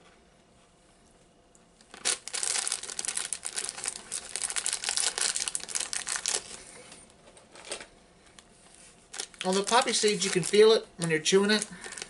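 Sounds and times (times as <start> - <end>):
plastic bag crinkling: 1.8 - 6.9, 9.1 - 12.0.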